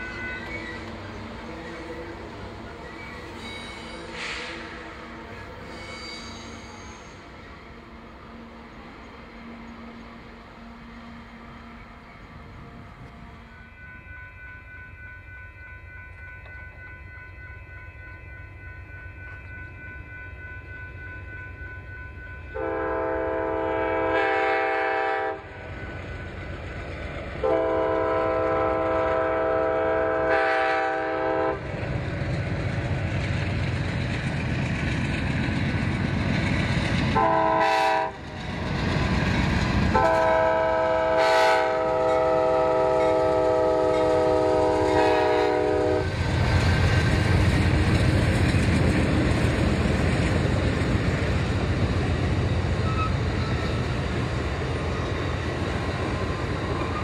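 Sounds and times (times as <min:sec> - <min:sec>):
train engine and wheels rumbling: 0:00.0 - 0:57.0
locomotive air horn: 0:03.1 - 0:07.2, 0:22.5 - 0:25.6, 0:27.4 - 0:31.6, 0:37.1 - 0:38.3, 0:39.9 - 0:46.2.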